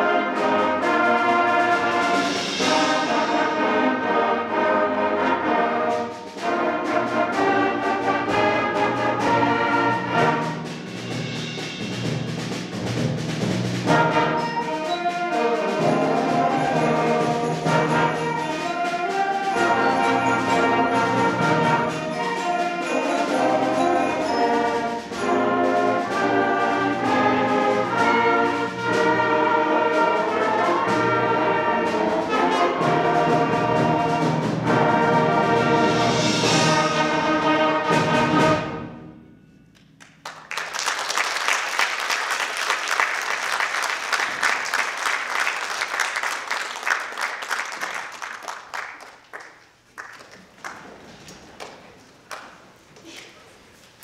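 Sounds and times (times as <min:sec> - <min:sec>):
concert band playing: 0:00.0 - 0:39.1
audience applause: 0:40.0 - 0:52.6.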